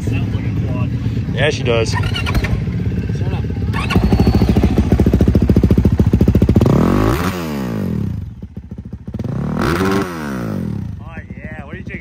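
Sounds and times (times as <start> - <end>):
dirt bike engine revving: 1.8 - 11.1.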